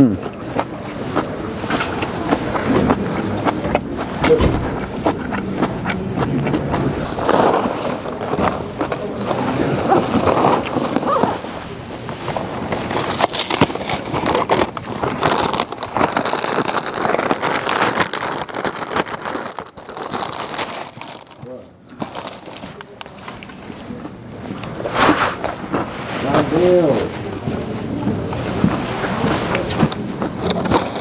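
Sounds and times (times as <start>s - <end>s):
plastic snack bag crinkling: 12.3s - 25.6s, 29.2s - 31.0s.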